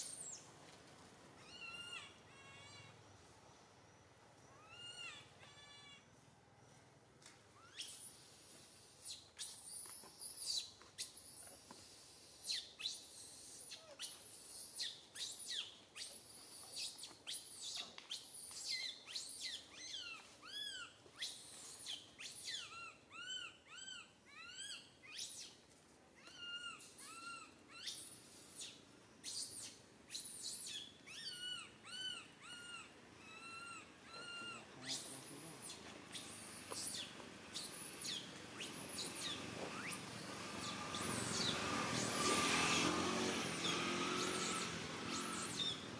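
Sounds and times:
infant monkey crying: 1.4 - 3.0, 4.5 - 6.1, 22.3 - 25.3, 26.2 - 28.7, 29.4 - 42.1.

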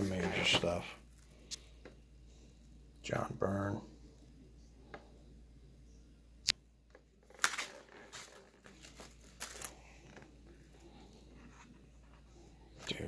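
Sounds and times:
book pages turning: 0.0 - 1.7, 7.2 - 12.3.

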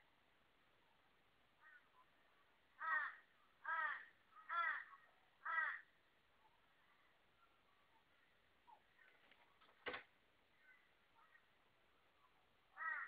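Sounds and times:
crow cawing harshly: 2.8 - 5.9, 12.8 - 13.0.

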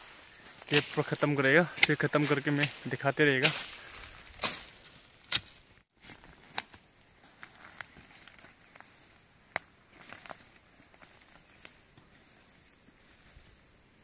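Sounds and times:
high insect trill: 0.0 - 5.9, 6.6 - 14.0
foliage rustling: 0.0 - 14.0
blade slashing through grass: 1.7 - 5.6.

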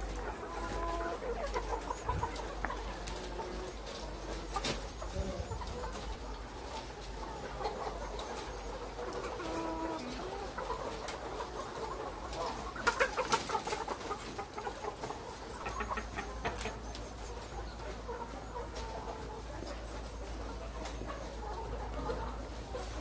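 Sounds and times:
hens clucking: 0.0 - 23.0.

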